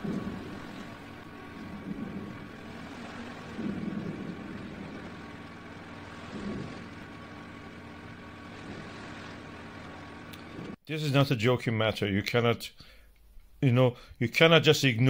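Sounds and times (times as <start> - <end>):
volcano eruption rumble: 0.0 - 10.8.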